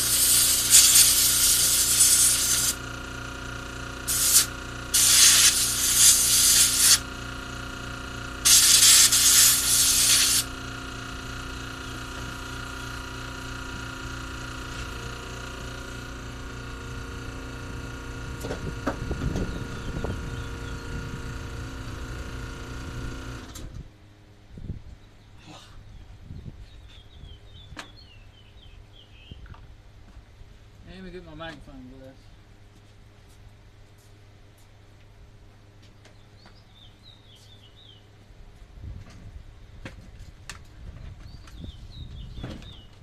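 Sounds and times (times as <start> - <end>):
compressed air hissing: 0.0 - 2.8, 4.1 - 7.0, 8.4 - 10.5
machine hum: 0.0 - 25.7.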